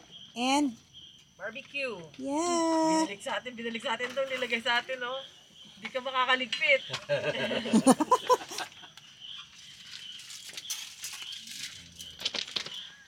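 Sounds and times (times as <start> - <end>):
voices: 0.4 - 0.8, 1.4 - 8.8.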